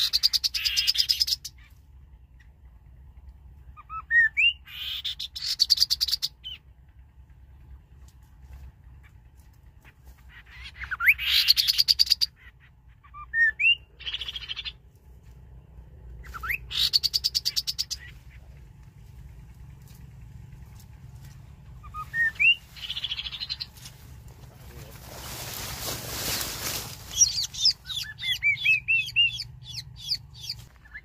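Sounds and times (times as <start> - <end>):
bird whistles and rattling trill: 0.0 - 1.8, 3.8 - 6.6, 10.3 - 14.8, 16.2 - 18.2, 21.7 - 23.8, 27.1 - 31.0.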